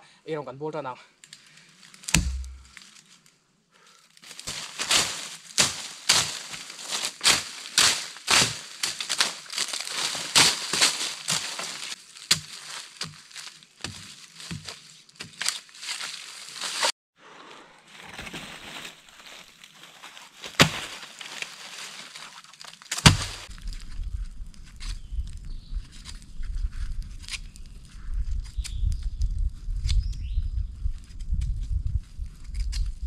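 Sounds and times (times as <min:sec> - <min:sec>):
dry leaves and twigs crunching: 0:01.3 - 0:03.4, 0:04.0 - 0:16.9, 0:17.9 - 0:29.4
sharp knock: 0:02.1 - 0:02.7.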